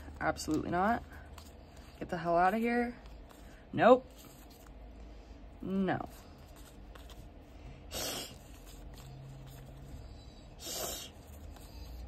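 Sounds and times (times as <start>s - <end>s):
handling vinyl stickers: 0.0s - 5.1s, 6.1s - 7.6s, 8.4s - 10.1s, 11.2s - 12.0s.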